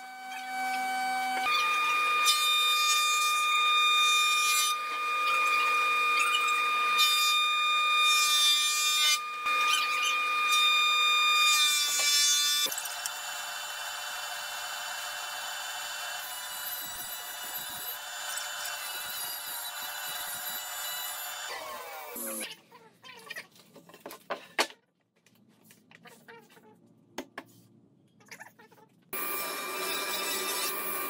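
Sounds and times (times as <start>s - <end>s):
planer cutting wood: 0.0s - 22.4s, 29.2s - 31.0s
thickness planer whining: 0.0s - 22.4s, 29.2s - 31.0s
panel saw humming: 29.2s - 31.0s.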